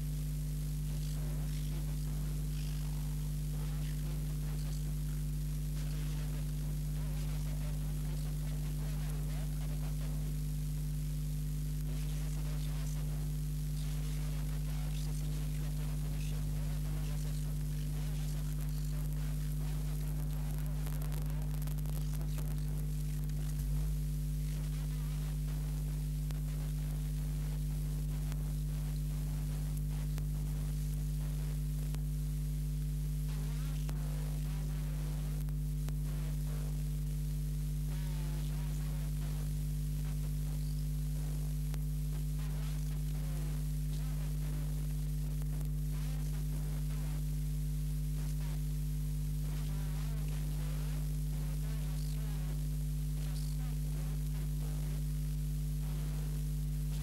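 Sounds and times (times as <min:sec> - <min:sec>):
electrical mains hum: 0:00.0 - 0:57.0.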